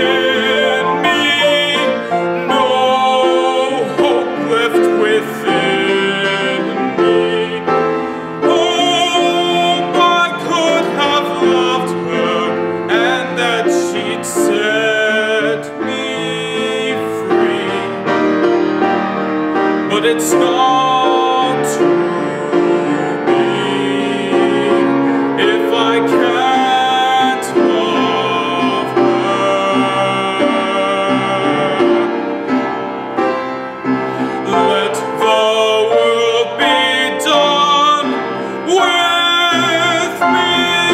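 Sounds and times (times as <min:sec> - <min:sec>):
man singing: 0:00.0 - 0:19.0, 0:19.8 - 0:32.6, 0:34.0 - 0:40.9
piano accompaniment: 0:00.0 - 0:40.9.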